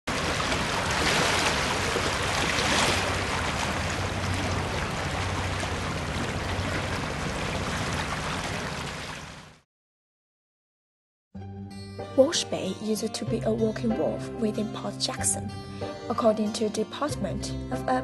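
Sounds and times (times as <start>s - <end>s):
water lapping against rocky shore: 0.1s - 9.6s.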